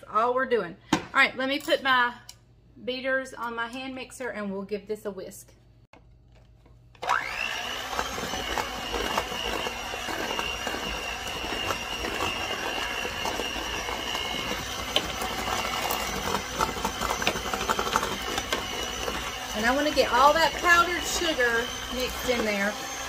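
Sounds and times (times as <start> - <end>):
electric hand mixer whirring: 7.0 - 23.0.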